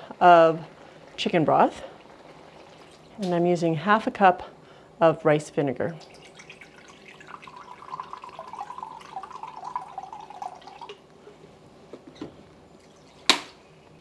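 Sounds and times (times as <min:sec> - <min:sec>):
liquid pouring into a glass cup: 0:06.0 - 0:11.0.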